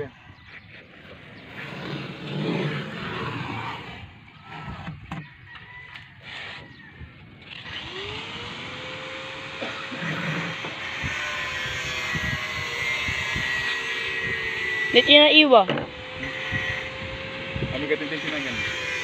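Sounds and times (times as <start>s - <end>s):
motor engine running with whine: 6.6s - 19.0s.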